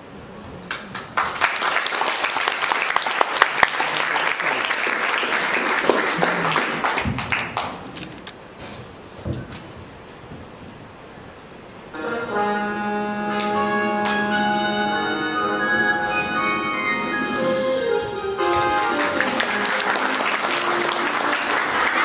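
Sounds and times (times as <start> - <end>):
audience clapping: 0.6 - 8.3, 18.4 - 22.0.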